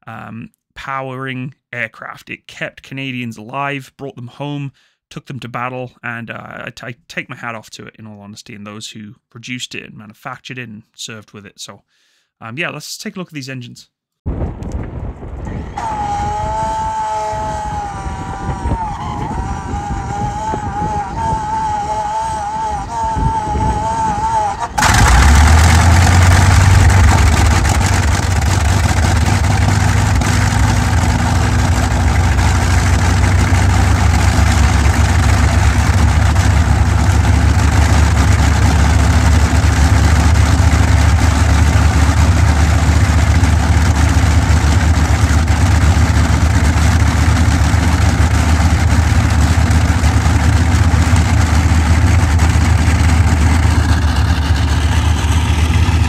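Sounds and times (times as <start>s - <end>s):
radial aero engine droning: 15.8s - 56.0s.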